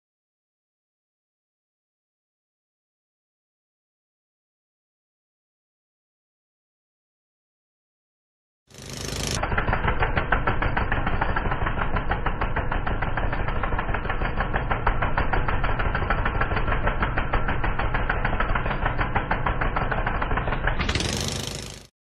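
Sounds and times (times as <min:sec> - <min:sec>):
boat engine running: 0:08.7 - 0:21.9.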